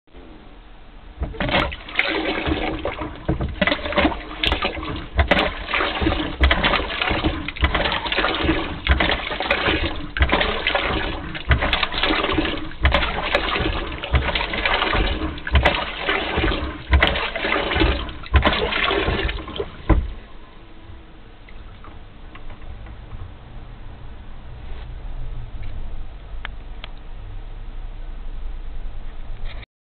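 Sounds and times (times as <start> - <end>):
water spurting and splashing: 1.2 - 20.4.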